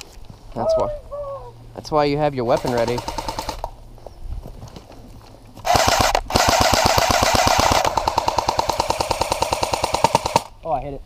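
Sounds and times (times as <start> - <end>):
airsoft rifle firing full-auto: 2.5 - 3.7, 5.6 - 10.5.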